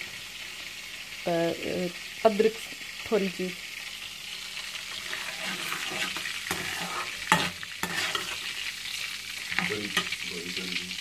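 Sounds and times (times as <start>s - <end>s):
spices sizzling in hot oil: 0.0s - 11.0s
metal spoon scraping pan: 4.9s - 8.7s.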